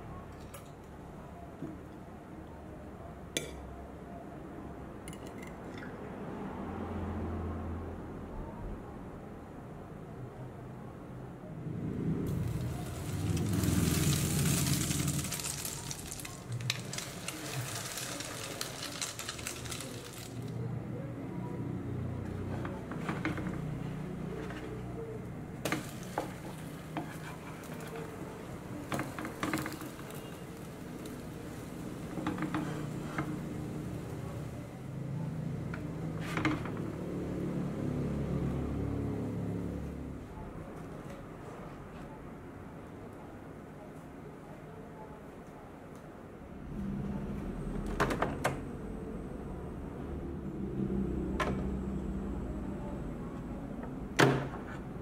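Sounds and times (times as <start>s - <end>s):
bread sizzling in a pan: 12.3s - 20.6s, 25.6s - 34.3s
crackling and popping fat: 12.3s - 20.6s
toast frying in butter: 12.3s - 20.6s, 25.6s - 34.6s
spatula scraping a pan: 25.8s - 28.3s, 32.1s - 33.6s.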